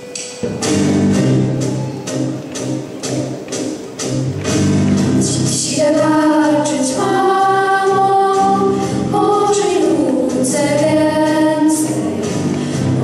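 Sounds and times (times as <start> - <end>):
instrumental accompaniment: 0.0 - 13.0
girls singing together: 5.2 - 13.0.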